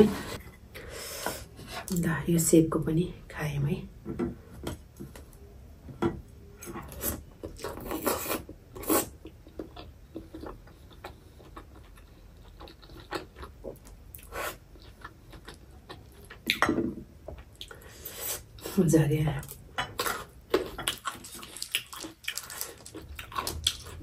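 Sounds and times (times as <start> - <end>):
chewing soft food: 6.8 - 16.6, 20.0 - 24.0.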